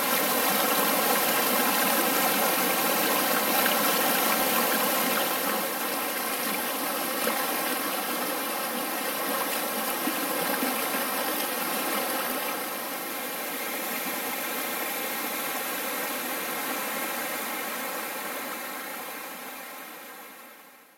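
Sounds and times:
stream rushing over rocks: 0:00.0 - 0:19.4.

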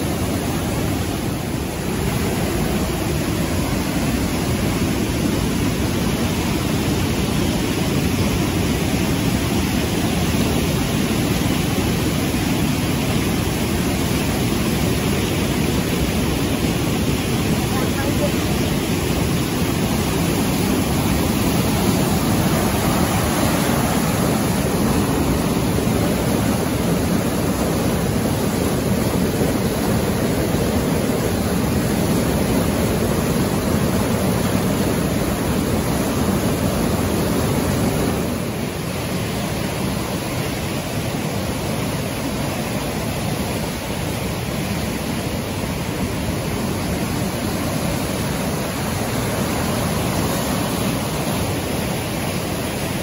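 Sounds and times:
water rushing over rocks: 0:00.0 - 0:53.0.

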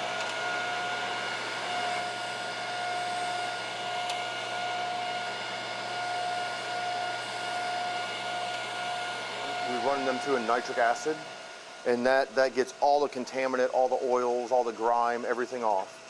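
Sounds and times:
grinder motor whining: 0:00.0 - 0:13.1.

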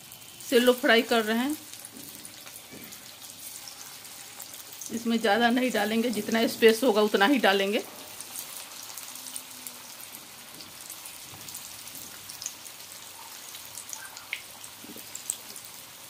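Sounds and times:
patties sizzling in hot oil: 0:00.0 - 0:16.0
oil crackles and pops: 0:08.1 - 0:16.0.

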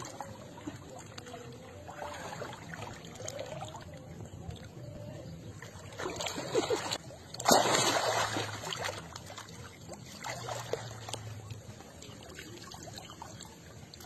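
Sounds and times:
water splashing: 0:00.0 - 0:14.0
water sloshing and dripping: 0:05.5 - 0:14.0.

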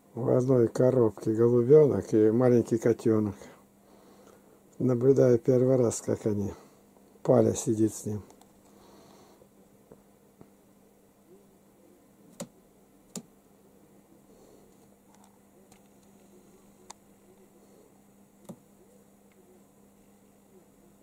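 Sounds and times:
steady low hum: 0:00.0 - 0:21.0
pigeon pecking on cardboard: 0:12.3 - 0:12.5.

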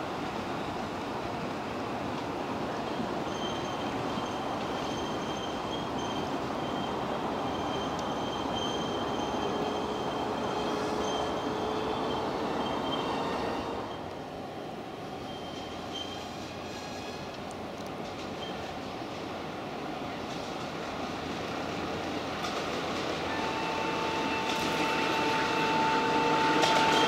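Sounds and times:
thin high wheel squeal: 0:03.2 - 0:14.1, 0:15.2 - 0:17.4, 0:23.3 - 0:27.0
miniature train running on track: 0:22.4 - 0:27.0.

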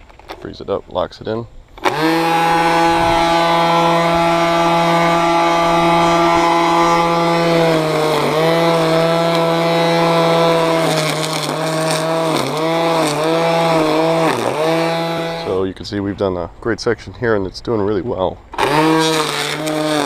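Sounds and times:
trimmer line crackling on grass: 0:00.0 - 0:17.2, 0:17.9 - 0:20.0
string trimmer whining: 0:01.6 - 0:15.8, 0:18.4 - 0:20.0.

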